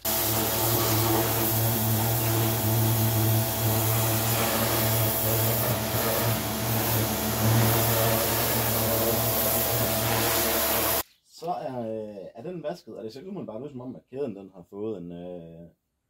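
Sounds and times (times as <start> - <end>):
high-pressure water jet hissing: 0.0 - 11.0
pressure washer motor hum: 0.0 - 11.0.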